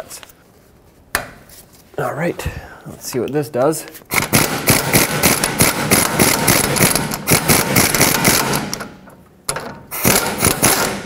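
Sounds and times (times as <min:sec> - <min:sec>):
air impact gun rattling: 0:04.1 - 0:11.0.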